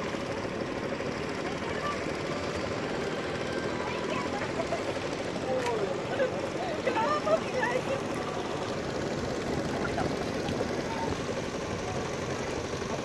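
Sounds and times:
hubbub of people talking: 1.1 - 13.0.

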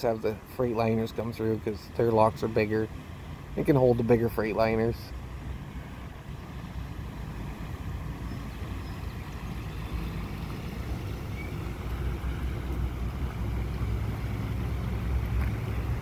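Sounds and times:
boat engines rumbling: 0.0 - 16.0.

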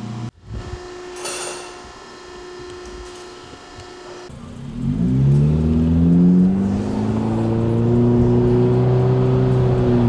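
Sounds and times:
car engine accelerating: 3.8 - 10.0.

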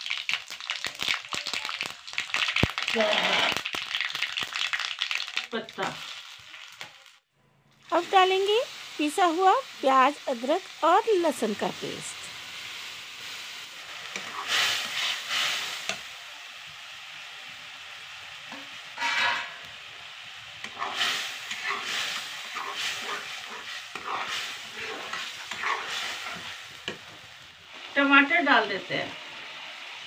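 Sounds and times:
paste sizzling in hot oil: 0.0 - 7.2, 7.8 - 30.0
metal ladle scraping pan: 14.1 - 15.3, 19.0 - 19.7, 20.7 - 27.0.

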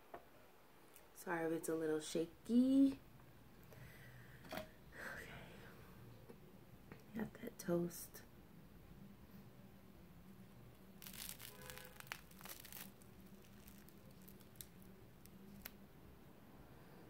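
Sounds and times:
toast crust crackling: 11.0 - 15.8.

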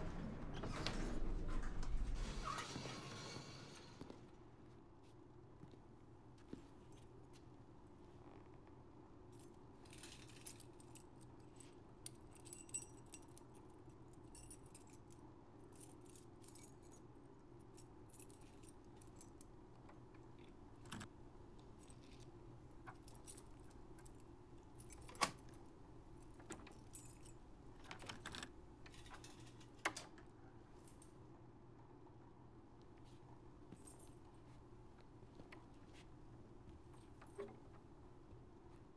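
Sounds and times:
low steady hum: 4.0 - 38.9
keys jingling: 9.4 - 17.1, 21.7 - 30.1.

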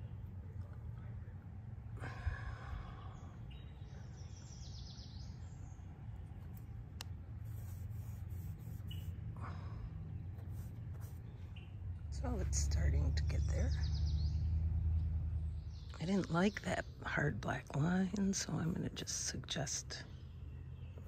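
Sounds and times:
steady low rumble: 0.0 - 4.5
bird singing: 1.3 - 6.8, 8.7 - 9.2, 10.0 - 21.0.

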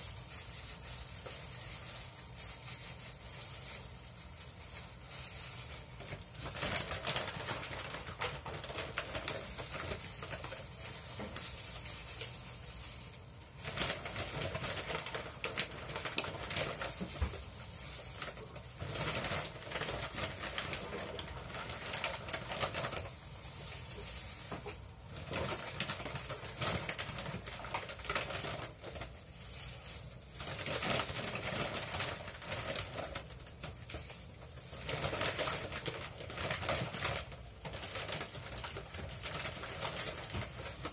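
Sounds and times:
plastic bag rustling: 0.0 - 40.9.

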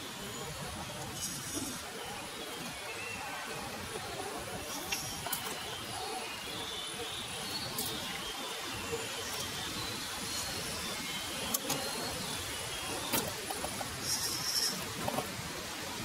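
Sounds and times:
rc car electric drive whirring: 1.0 - 2.0, 9.2 - 15.4.

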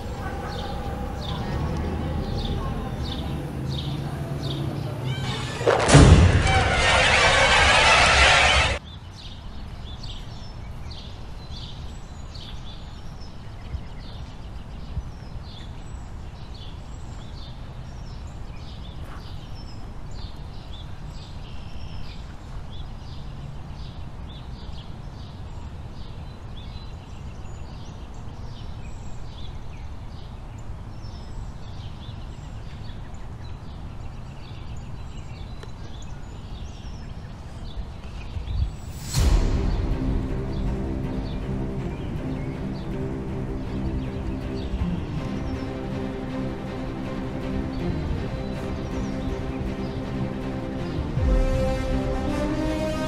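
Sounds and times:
low background rumble: 0.0 - 8.8, 38.6 - 53.0
birds chirping: 0.0 - 22.4, 39.9 - 53.0.

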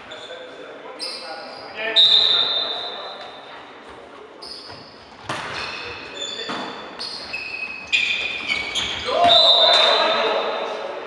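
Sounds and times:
shoes squeaking on court floor: 0.0 - 10.7
volleyball hits echoing: 4.7 - 6.9.

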